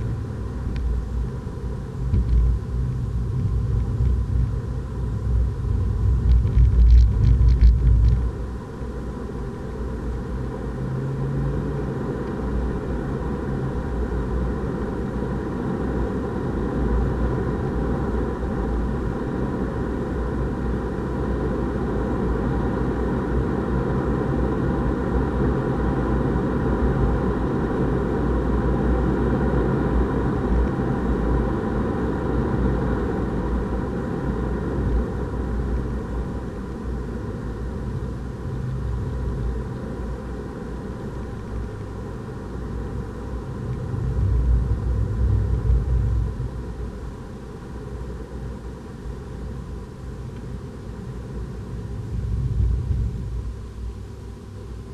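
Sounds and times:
tyre and road rumble: 2.0s - 8.4s.

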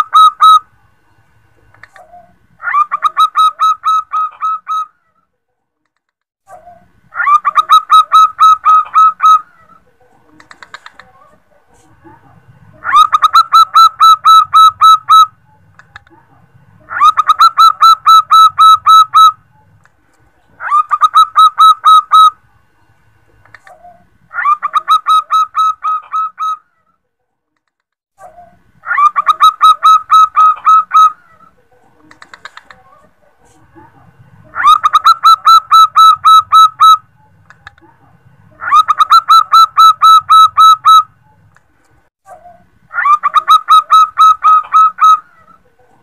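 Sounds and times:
dove staccato cooing: 7.2s - 11.4s, 12.8s - 16.1s, 16.8s - 19.4s, 20.6s - 22.4s, 28.4s - 33.4s, 34.5s - 37.8s, 38.6s - 41.4s, 42.4s - 45.9s.

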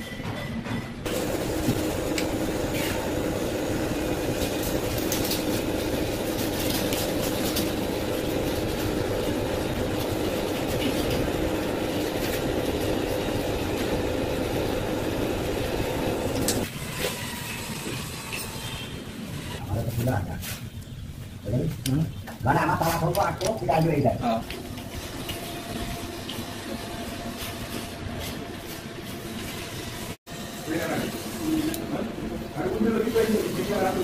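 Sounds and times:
mechanical drone with hum: 1.1s - 19.7s.

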